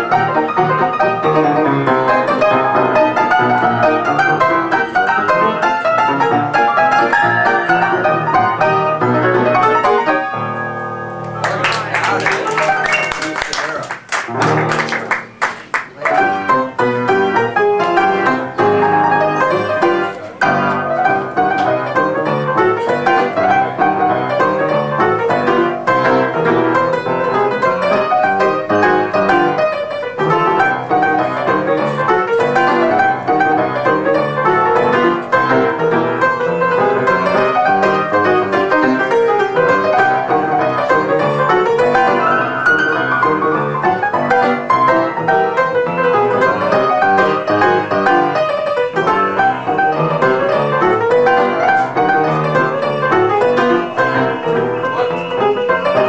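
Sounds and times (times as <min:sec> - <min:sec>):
ragtime piano: 0:00.0 - 0:56.0
hand clapping: 0:11.2 - 0:16.5.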